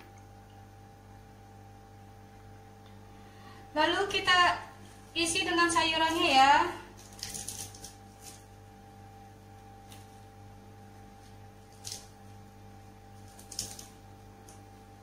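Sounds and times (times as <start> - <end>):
low electrical hum: 0.0 - 15.0
lettuce leaves rustling: 5.8 - 8.7, 9.8 - 10.4, 13.1 - 14.0.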